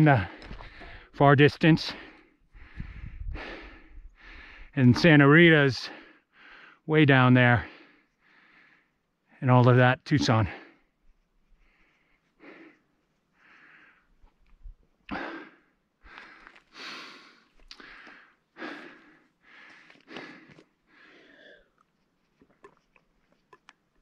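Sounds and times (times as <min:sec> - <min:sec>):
man breathing hard: 0:00.2 - 0:01.1, 0:02.0 - 0:04.8, 0:05.9 - 0:06.8, 0:07.6 - 0:09.0, 0:11.6 - 0:14.2, 0:15.1 - 0:21.8.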